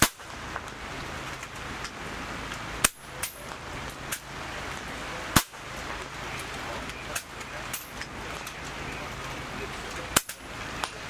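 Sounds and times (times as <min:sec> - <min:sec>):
air rifle shots: 0:00.0 - 0:00.2, 0:05.3 - 0:05.6
background noise: 0:00.0 - 0:11.0.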